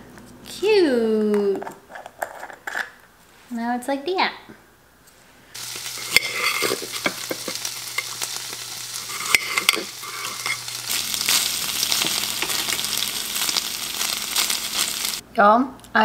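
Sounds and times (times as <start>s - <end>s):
food sizzling in a pan: 5.6s - 15.2s.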